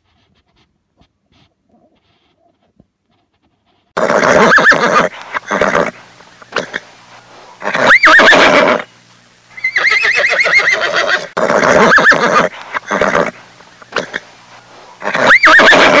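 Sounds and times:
horse whinnying: 4.0 - 6.0, 7.6 - 8.9, 9.6 - 13.4, 15.0 - 16.0.

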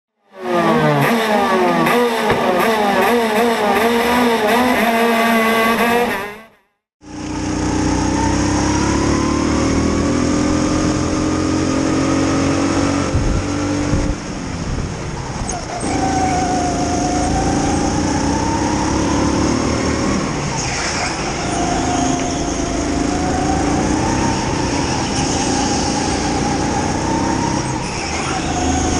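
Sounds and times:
go-kart engine at high revs: 0.2 - 28.9
engine revving hard: 0.3 - 13.8, 15.8 - 28.9.

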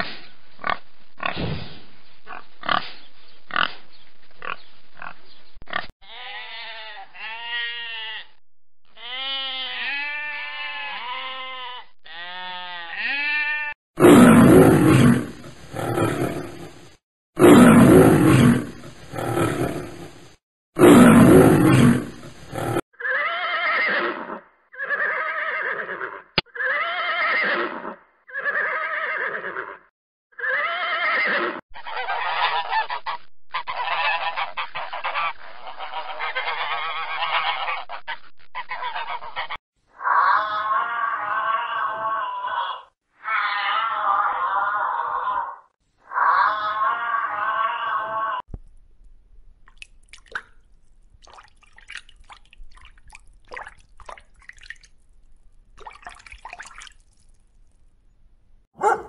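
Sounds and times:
sheep bleating: 6.0 - 13.8.

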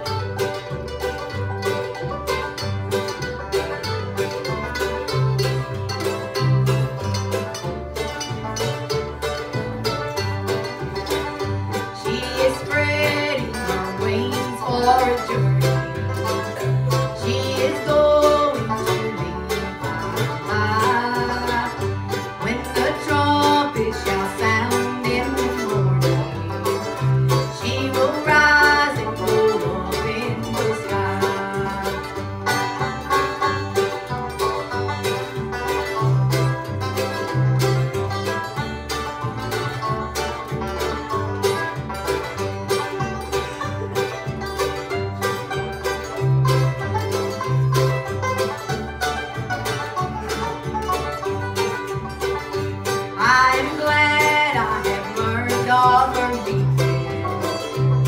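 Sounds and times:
mandolin: 0.0 - 58.0
strummed acoustic guitar: 0.0 - 58.0
upright bass plucking: 0.0 - 58.0
woman singing: 11.9 - 15.8, 17.0 - 26.4, 27.4 - 32.3, 53.2 - 57.2.

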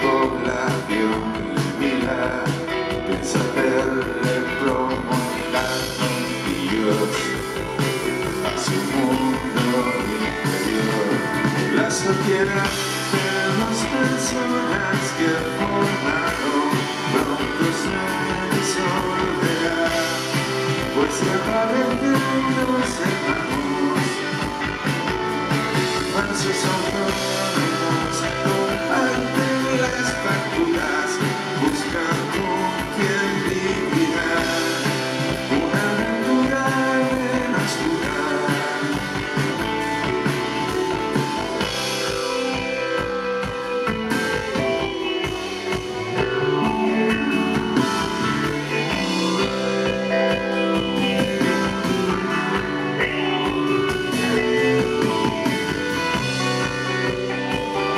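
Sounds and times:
drum kit: 0.0 - 57.9
electric and acoustic guitars: 0.0 - 57.9
man singing lead vocals: 0.0 - 57.9.

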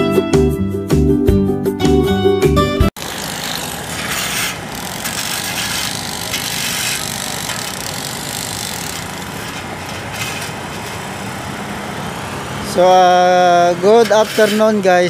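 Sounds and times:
engine hum: 3.0 - 15.0.

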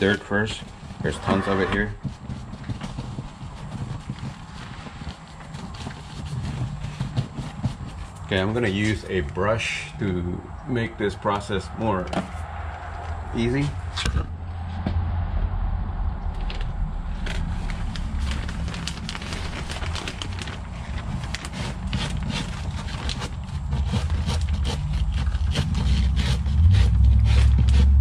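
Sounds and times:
brush scraping filter bag: 0.0 - 9.9, 17.2 - 28.0
low rumble: 8.4 - 23.1, 24.1 - 28.0
plastic bag crackling: 16.6 - 25.8.

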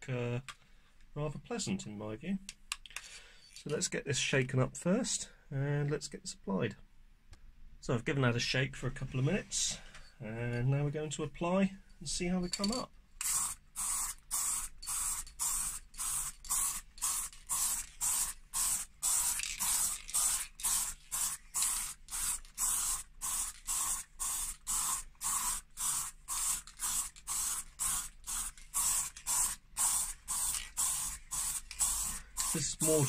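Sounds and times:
aerosol spray can hissing: 13.2 - 33.0.

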